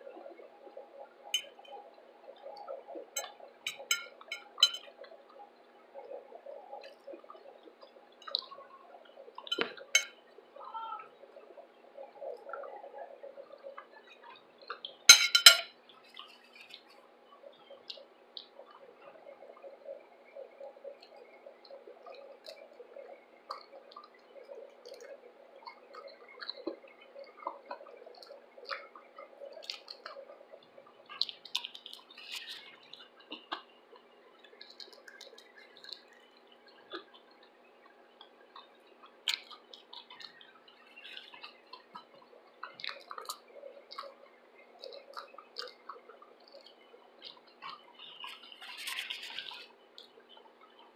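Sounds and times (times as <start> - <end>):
chewing fried shrimp: 24.8 - 44.2, 44.8 - 50.7.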